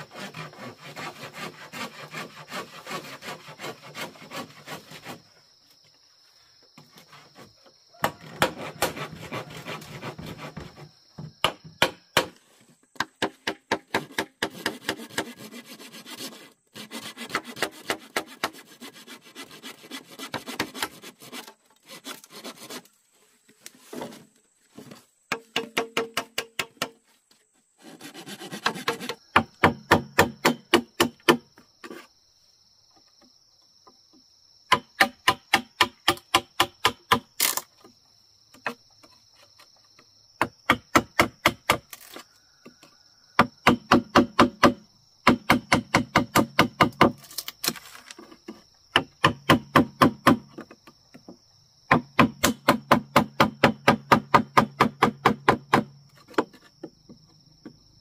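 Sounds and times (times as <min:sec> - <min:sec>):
tool knocking on bamboo: 0:11.2 - 0:12.4, 0:13.0 - 0:15.3, 0:25.3 - 0:27.0, 0:28.6 - 0:31.5, 0:34.7 - 0:37.3, 0:40.4 - 0:41.9, 0:43.4 - 0:47.2, 0:48.9 - 0:57.8.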